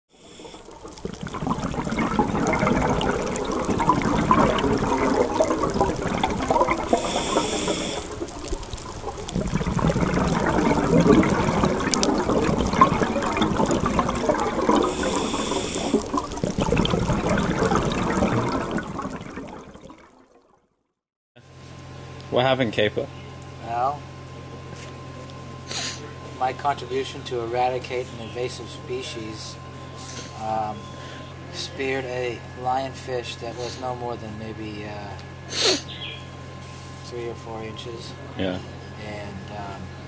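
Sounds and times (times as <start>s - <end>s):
underwater bubbling and gurgling: 0.1s - 20.6s.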